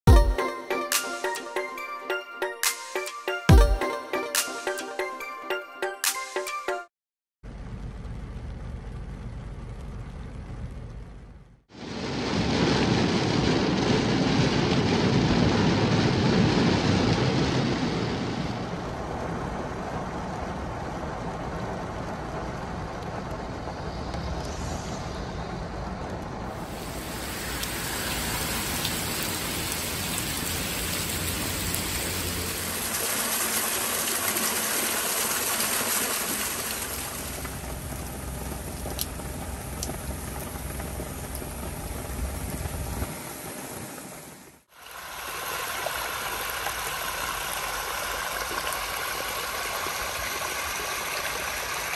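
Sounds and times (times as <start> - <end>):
low road rumble: 7.4 - 50.8
rain on street and leaves: 11.7 - 51.9
rain on car glass: 11.8 - 24.4, 26.1 - 50.8
sharp drips: 26.6 - 38.0.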